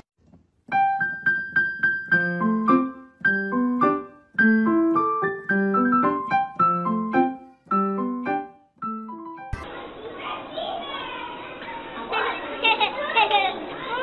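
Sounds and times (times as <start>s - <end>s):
piano music: 0.6s - 9.7s.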